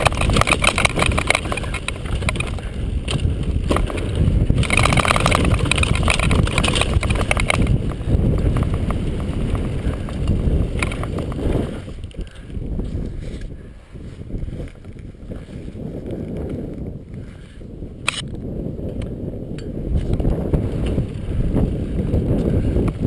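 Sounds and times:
bike knocks and clatters: 0:00.0 - 0:13.0
bike tyres crunching over gravel: 0:00.0 - 0:17.6, 0:18.2 - 0:23.0
wind noise on microphone: 0:00.0 - 0:23.0.

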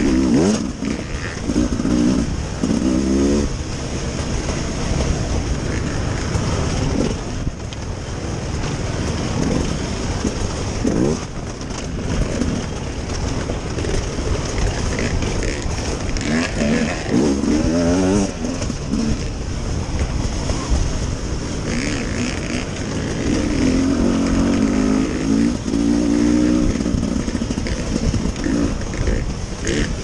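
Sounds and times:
dirt bike engine revving: 0:00.0 - 0:07.5, 0:08.6 - 0:20.7, 0:21.4 - 0:30.0.

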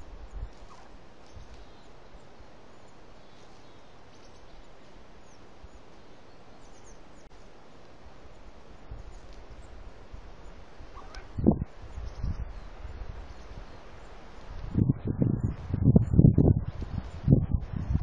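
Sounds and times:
outdoor background hiss: 0:00.0 - 0:18.0
low rumble: 0:14.6 - 0:18.0.

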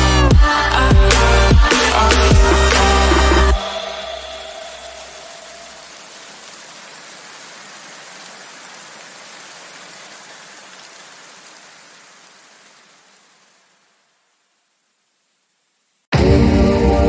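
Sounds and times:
electronic music: 0:00.0 - 0:05.9
rain-like hiss: 0:00.5 - 0:16.1.

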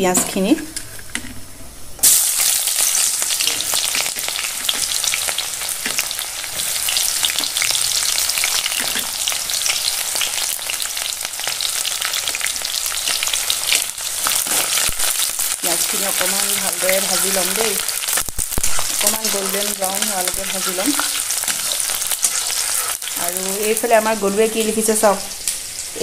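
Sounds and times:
onions sizzling in hot oil: 0:02.0 - 0:26.0
metal spatula stirring: 0:15.9 - 0:23.8.

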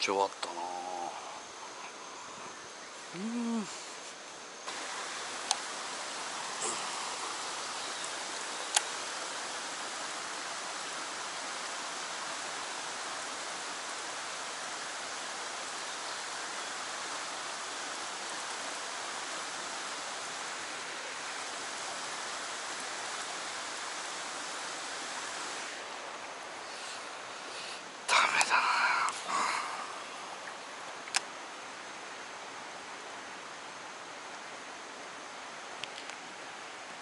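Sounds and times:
water rushing down channel: 0:04.7 - 0:31.2.

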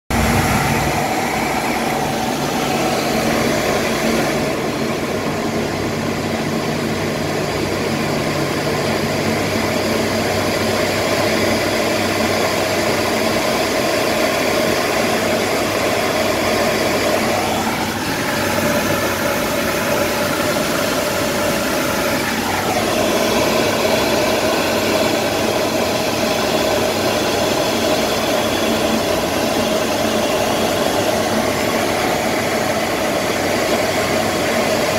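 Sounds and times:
steady hums: 0:00.1 - 0:10.9
engines droning: 0:00.1 - 0:13.3
rush of air in aircraft cabin: 0:00.1 - 0:34.9.

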